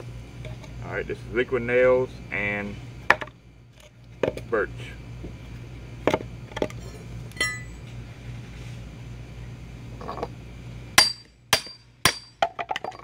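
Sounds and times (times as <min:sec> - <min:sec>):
steel tools clinking: 0:07.4 - 0:07.8.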